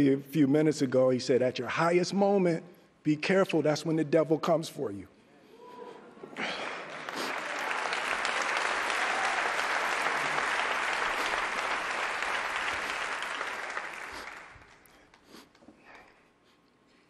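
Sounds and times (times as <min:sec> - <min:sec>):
large audience applauding: 0:06.4 - 0:14.9.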